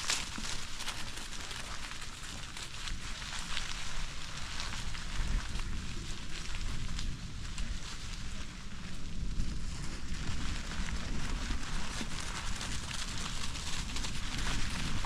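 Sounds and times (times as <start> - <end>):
bicycle tyres crunching leaves: 0.0 - 15.0.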